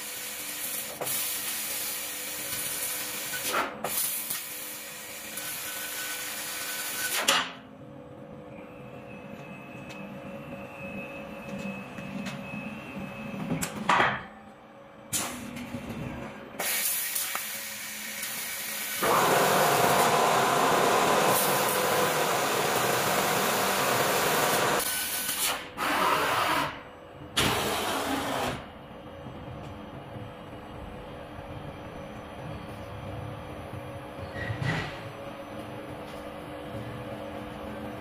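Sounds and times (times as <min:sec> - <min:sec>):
machine humming with faint whine: 0:00.0 - 0:25.8, 0:26.6 - 0:38.0
laser cutter gas jet hissing: 0:16.6 - 0:25.6.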